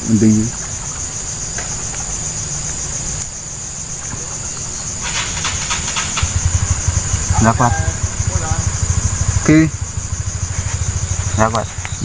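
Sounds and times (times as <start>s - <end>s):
insects trilling: 0.0s - 12.0s
rapid clicks: 5.0s - 12.0s.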